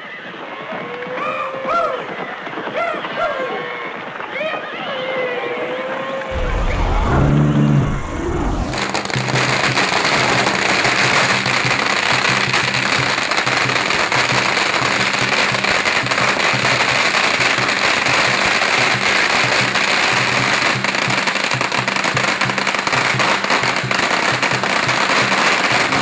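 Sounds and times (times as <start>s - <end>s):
firecrackers rattling: 6.4s - 26.0s.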